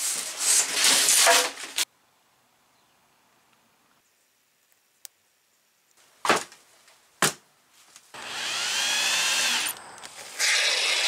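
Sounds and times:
electric drill whining: 8.2 - 11.0.

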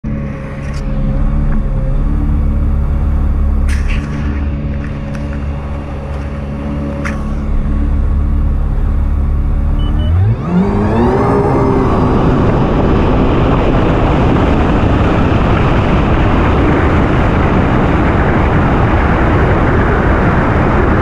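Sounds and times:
jet ski engine running: 0.0 - 21.0.

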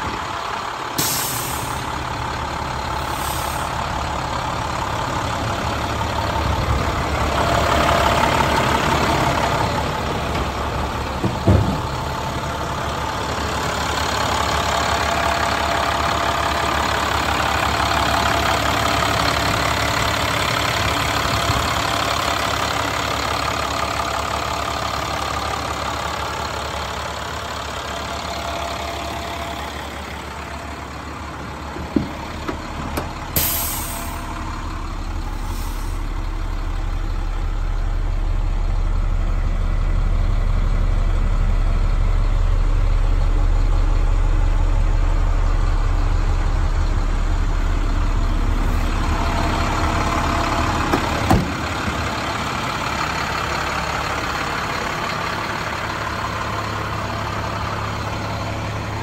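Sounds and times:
diesel engine idling: 0.0 - 59.0
knock: 11.2 - 11.8.

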